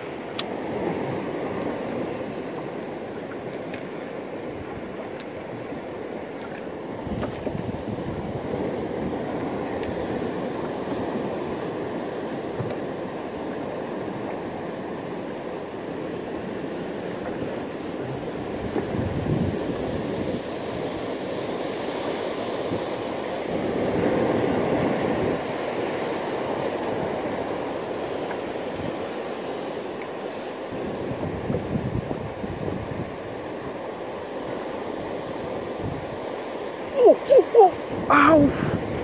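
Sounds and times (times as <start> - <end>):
sea waves rushing: 0.0 - 39.0
wind: 0.0 - 39.0.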